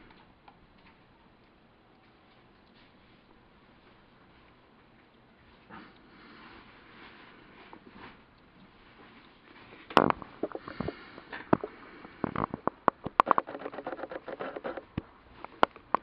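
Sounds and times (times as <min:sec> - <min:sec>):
lizard chewing leaves: 0:00.0 - 0:15.9.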